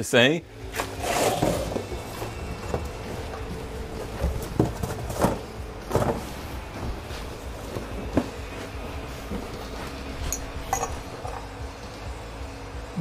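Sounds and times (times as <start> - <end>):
low workshop hum: 0.0 - 13.0.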